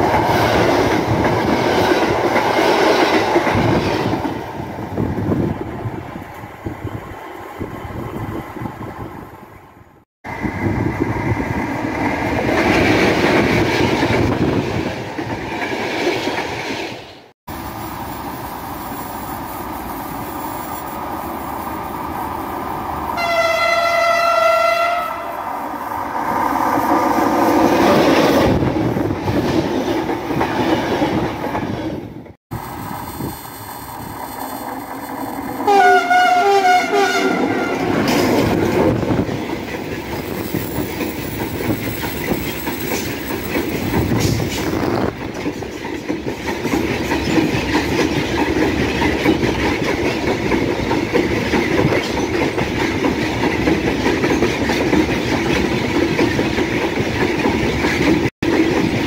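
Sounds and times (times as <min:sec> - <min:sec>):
train wheels rumbling on rails: 0:00.0 - 0:59.0
two-note horn blast: 0:23.2 - 0:25.3, 0:35.7 - 0:37.9
train horn blast: 0:23.2 - 0:25.5, 0:35.6 - 0:38.1.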